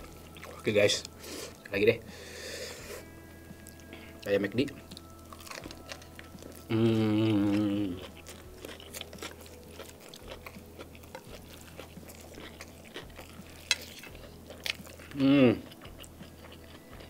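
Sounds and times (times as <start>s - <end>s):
close-miked chewing: 0.0s - 1.6s, 3.6s - 17.0s
person humming: 6.6s - 8.2s, 15.0s - 15.8s.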